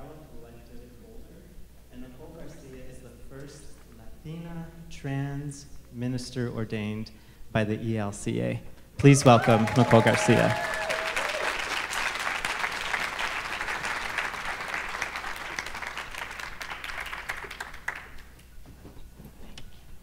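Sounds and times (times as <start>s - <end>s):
audience applauding: 9.0s - 18.4s.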